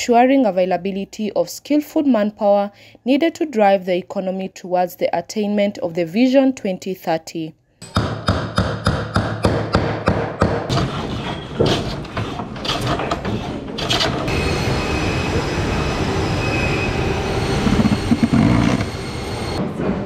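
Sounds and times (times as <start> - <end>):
hammer striking nails into wood: 7.8 - 10.8
cordless drill boring into chipboard: 17.6 - 19.0.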